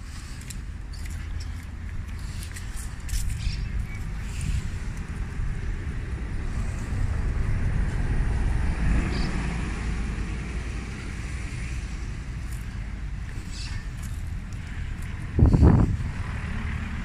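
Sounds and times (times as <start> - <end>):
vehicle passing by: 4.0 - 17.0.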